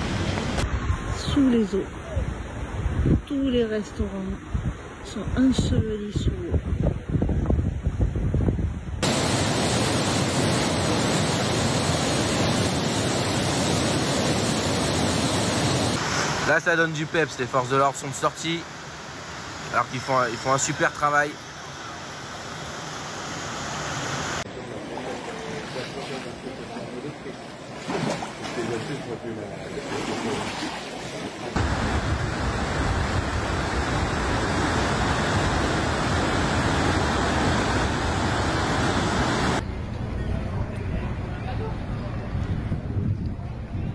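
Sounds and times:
turbulent river water rushing: 9.0 - 39.6.

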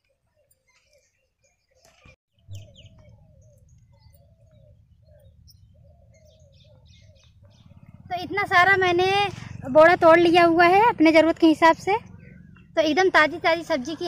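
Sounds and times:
birds chirping: 0.0 - 14.0
short low bird calls: 0.1 - 8.1
low steady rumble: 2.5 - 14.0.

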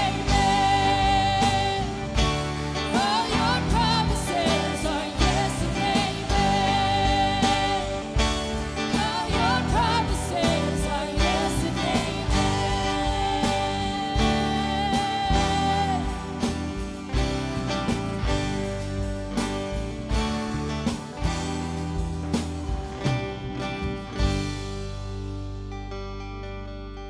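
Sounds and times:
singers with vibrato: 0.0 - 16.8
electric and acoustic guitars: 0.0 - 27.0.

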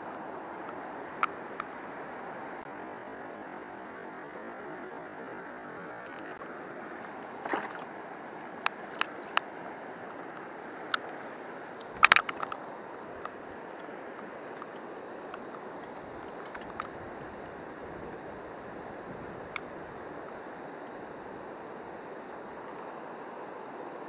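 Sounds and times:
river water running: 0.0 - 24.0
sharp clicks and knocks: 11.8 - 12.6.

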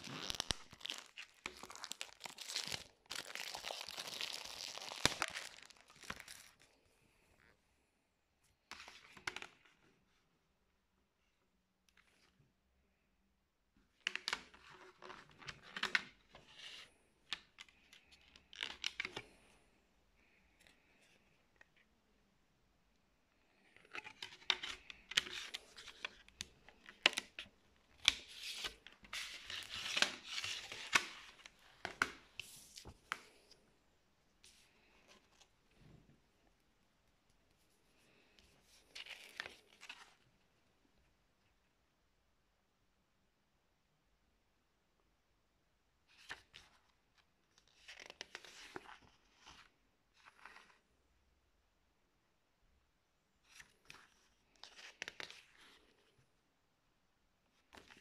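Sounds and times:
cellophane crinkling and tearing: 0.0 - 6.7
paper rustling: 0.0 - 6.7, 23.5 - 33.6.

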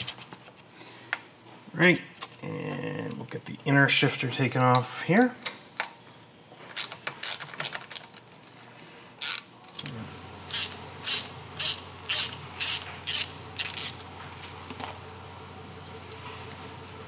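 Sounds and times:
hand ratchet rasping: 9.2 - 9.4, 10.5 - 14.6.

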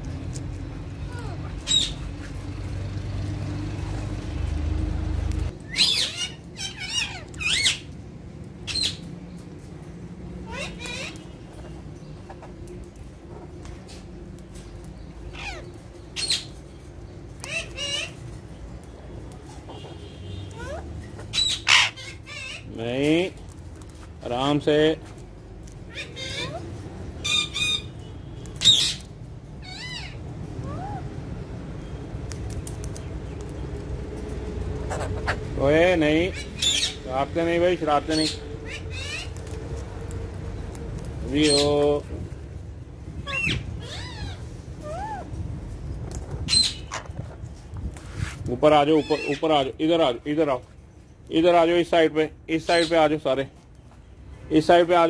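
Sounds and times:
parakeets calling loudly: 0.9 - 2.6, 5.4 - 9.2, 10.3 - 12.6, 14.6 - 24.7, 25.6 - 31.4, 32.6 - 42.3, 43.0 - 47.3, 48.6 - 50.5, 52.5 - 53.2
steady low rumble: 29.0 - 41.4, 42.0 - 48.6.

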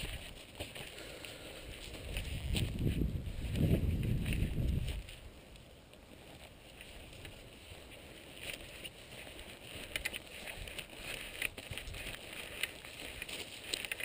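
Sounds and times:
footsteps on grass: 0.0 - 14.0
wind rumble on microphone: 1.7 - 5.4.

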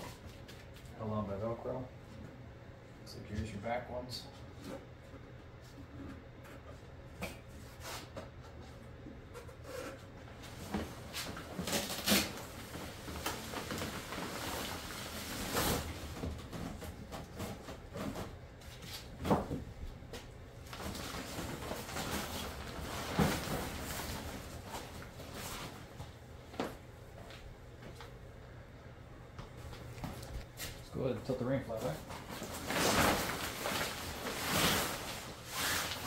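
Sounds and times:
tent fabric rustling: 32.2 - 36.0.

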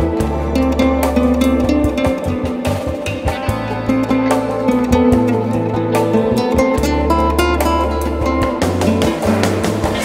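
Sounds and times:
classical guitar flamenco playing: 0.0 - 10.0.

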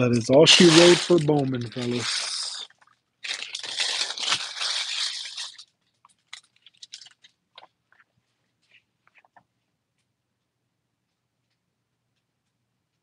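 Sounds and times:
wrapper crinkling: 0.0 - 8.1.

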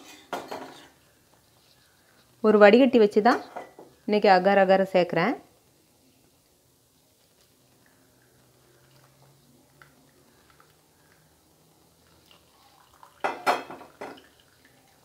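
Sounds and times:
metal utensils clinking on pot: 0.0 - 1.0.

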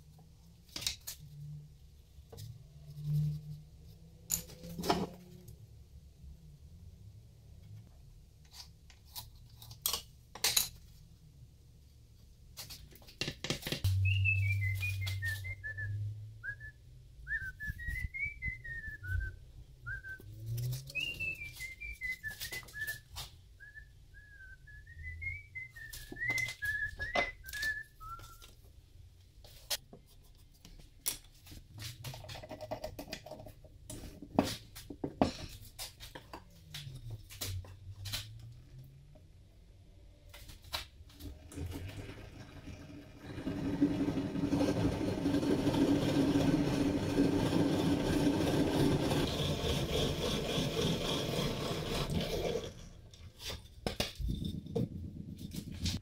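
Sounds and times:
wooden pieces and tools knocking: 13.1 - 14.0, 25.8 - 28.4, 32.0 - 36.5, 43.4 - 56.0
person whistling a tune: 13.9 - 20.3, 20.9 - 28.5.

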